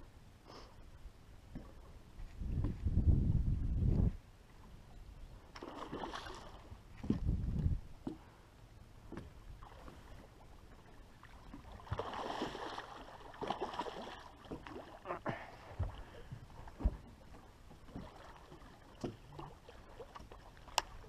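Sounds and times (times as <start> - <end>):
fish splashing in water: 11.7 - 15.0.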